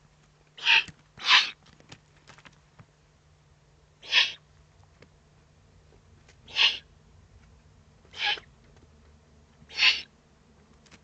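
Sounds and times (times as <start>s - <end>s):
owl chicks hissing begging calls: 0.6s - 1.6s, 4.0s - 4.4s, 6.5s - 6.9s, 8.1s - 8.5s, 9.7s - 10.1s.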